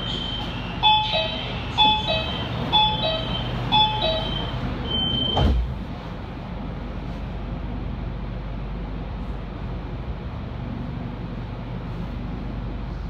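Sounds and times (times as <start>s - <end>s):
long steady beep: 0.0s - 5.5s
train hum: 0.0s - 13.0s
sliding doors shutting thud: 5.0s - 5.8s.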